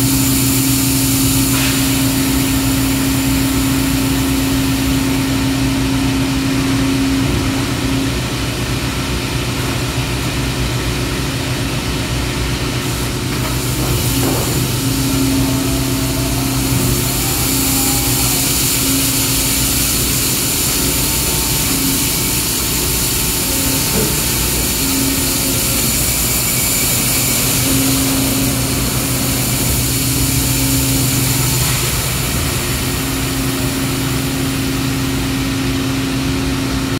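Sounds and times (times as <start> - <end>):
machine hum with pump tone: 0.0 - 36.9
high hiss: 13.6 - 34.7.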